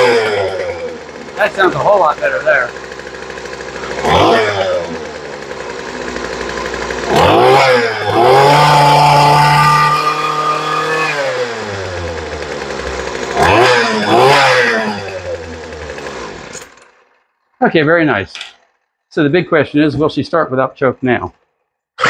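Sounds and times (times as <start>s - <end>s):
string trimmer engine revving: 0.0s - 17.2s.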